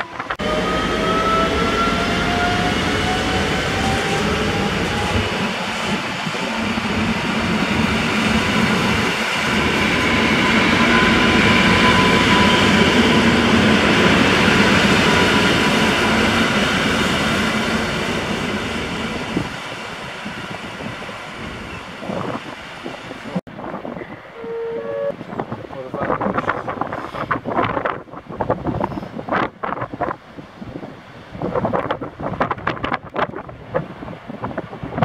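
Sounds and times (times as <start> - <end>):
train whine: 0.0 - 25.5.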